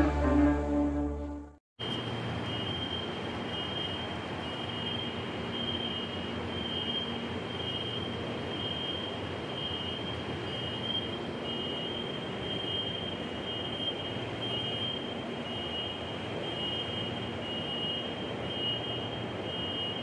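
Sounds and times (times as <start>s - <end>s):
metro train humming: 0.0s - 4.4s.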